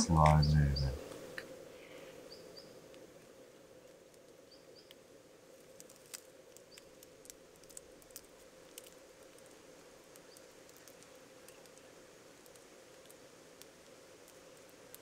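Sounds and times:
faint high chirps: 0.0 - 1.0
dry leaves and twigs crackling: 5.6 - 15.0.

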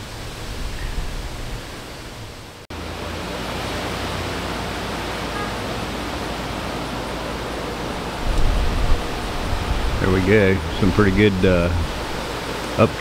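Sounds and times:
wind rushing on microphone: 7.0 - 13.0.

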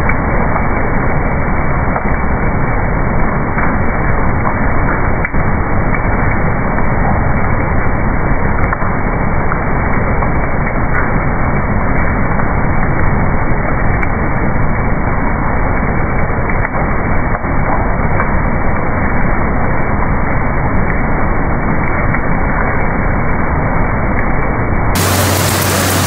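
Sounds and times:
low steady hum: 0.0 - 26.0
machine running: 25.0 - 26.0.

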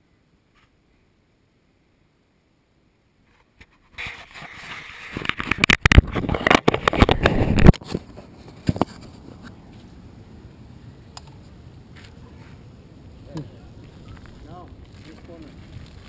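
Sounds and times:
rubbing and scraping on microphone: 3.2 - 9.9, 13.8 - 16.0.

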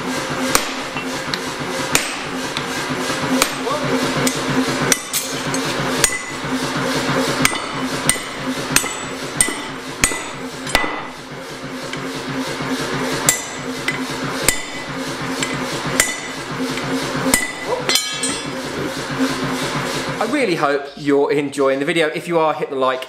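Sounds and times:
sledgehammer striking metal punch: 0.5 - 1.2, 1.9 - 2.4, 3.4 - 6.4, 7.4 - 11.2, 13.2 - 16.4, 17.3 - 18.6.

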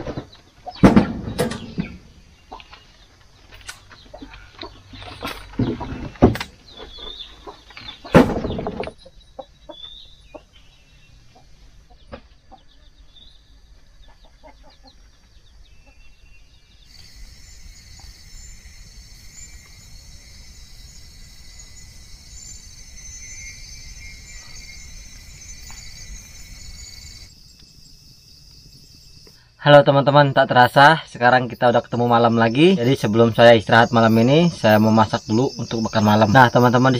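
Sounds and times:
loud knocks and clatter: 0.0 - 2.1, 8.1 - 9.0
chickens clucking: 0.0 - 13.1, 13.7 - 16.1
night insects chorus: 0.0 - 36.9.

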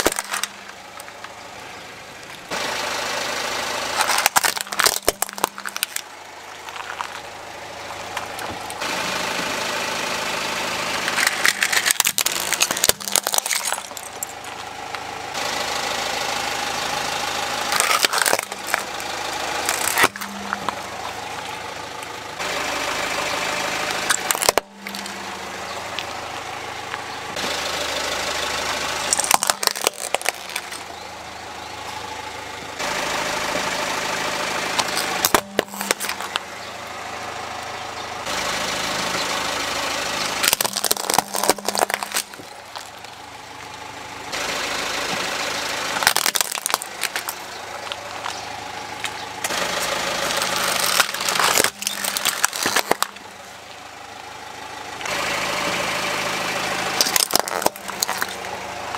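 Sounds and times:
plastic toys cracking under tyre: 0.0 - 1.4, 3.8 - 8.8, 11.0 - 15.0, 17.6 - 22.1, 23.9 - 25.2, 29.0 - 31.0, 34.8 - 36.5, 40.4 - 43.7, 45.9 - 53.4, 57.0 - 58.9
car engine running: 0.0 - 58.9.

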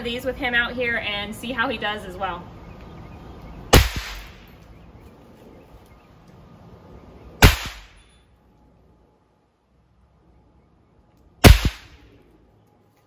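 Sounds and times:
firecracker bangs: 7.4 - 8.0.

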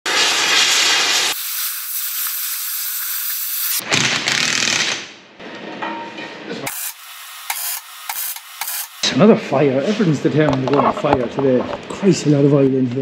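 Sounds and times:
hissing sizzling rush: 0.1 - 3.8.

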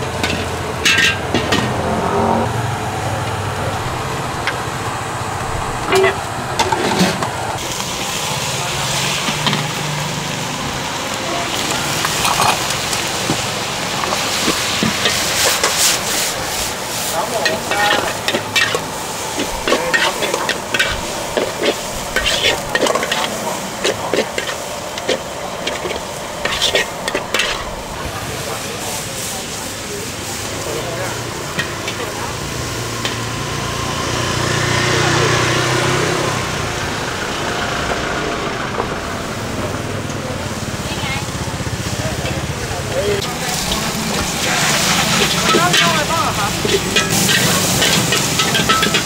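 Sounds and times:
vehicle engine running close by: 0.0 - 28.8, 29.9 - 49.0
food sizzling in a wok: 0.0 - 38.0, 39.0 - 49.0
street noise: 0.0 - 49.0
metal spatula scraping a pan: 5.9 - 7.2, 14.0 - 27.8, 43.5 - 49.0.

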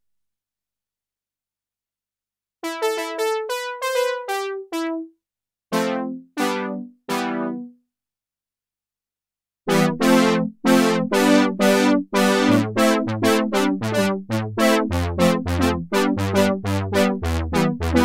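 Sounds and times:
synthesizer bass line: 9.7 - 18.0
synthesizer brass chords: 9.7 - 18.0.

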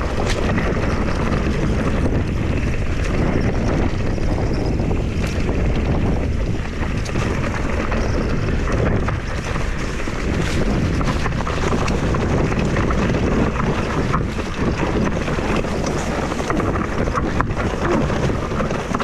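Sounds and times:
bike clicks and rattles: 0.0 - 19.0
tyre noise: 0.0 - 19.0
wind rushing over microphone: 0.0 - 19.0.

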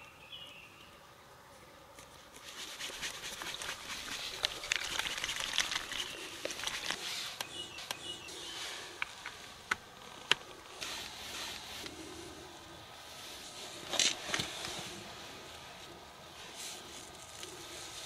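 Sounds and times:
liquid sloshing in shaken bottle: 2.8 - 7.0.

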